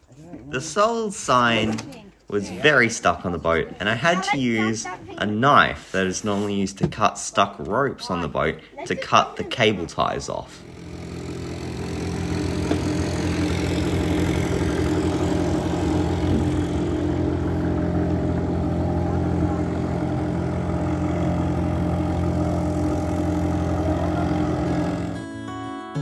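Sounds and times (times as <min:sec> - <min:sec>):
boat engine running steadily: 0:10.6 - 0:25.3.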